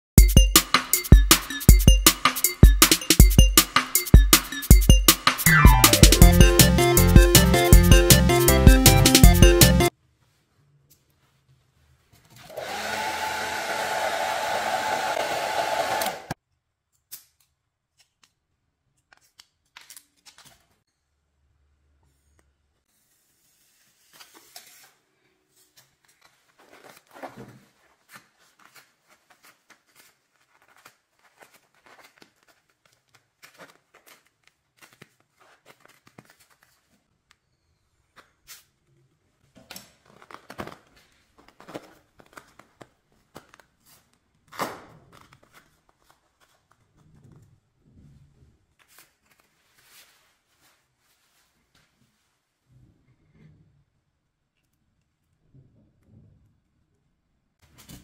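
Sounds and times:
plastic wrapping crinkling and tearing: 26.0s - 37.1s, 39.9s - 44.2s.

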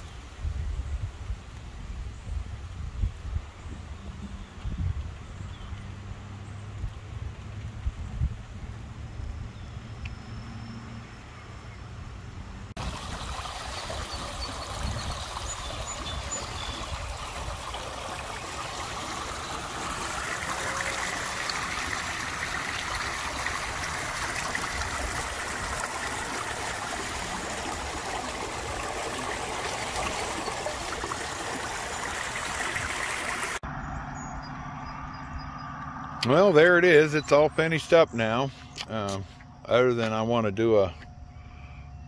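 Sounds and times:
water pouring into a drain: 12.8s - 33.6s
water rushing down a ditch: 12.8s - 33.6s.

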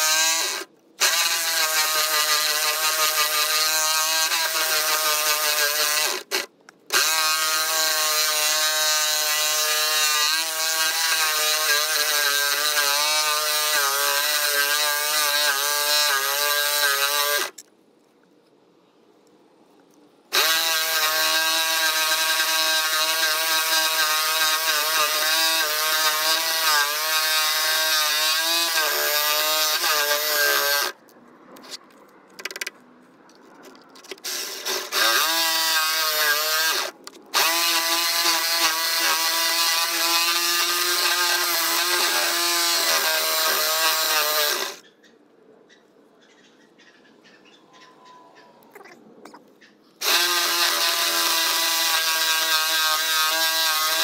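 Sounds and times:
jigsaw sawing through wood: 0.0s - 17.6s, 20.3s - 31.0s, 34.0s - 44.9s, 50.0s - 54.0s.

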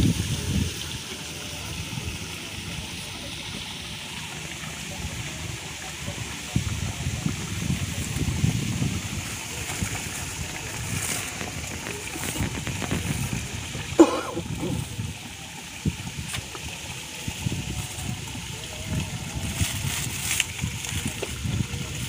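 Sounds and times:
wind buffeting microphone: 0.0s - 3.7s, 4.5s - 22.0s
dry leaves rustling: 7.0s - 22.0s.

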